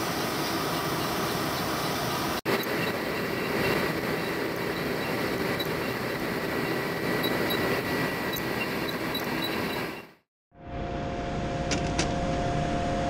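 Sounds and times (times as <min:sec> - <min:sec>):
milling machine with thin whine: 0:00.0 - 0:10.3.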